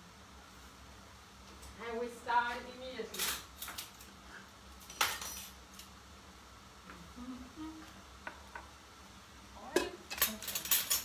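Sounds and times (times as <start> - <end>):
kitchen things clicking and knocking: 4.8 - 5.6, 9.7 - 11.0.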